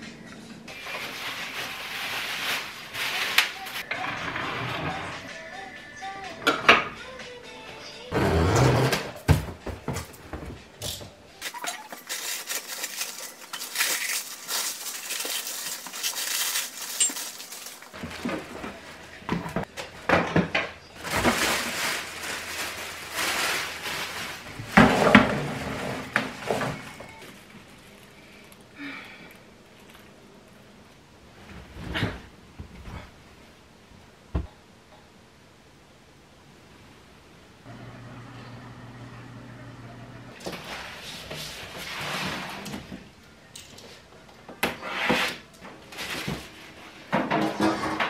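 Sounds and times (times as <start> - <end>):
plastic wrapping rustling: 0.7 - 3.9, 11.4 - 30.7.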